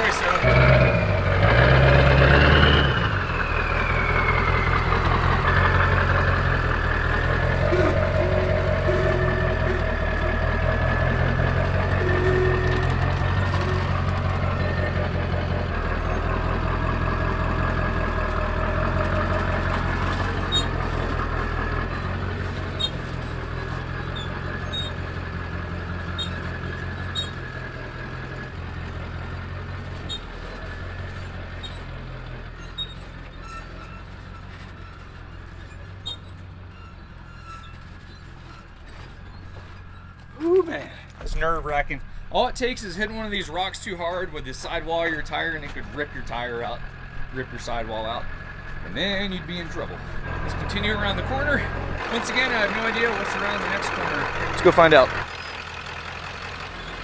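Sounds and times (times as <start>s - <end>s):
diesel engine at low revs: 0.0s - 57.0s.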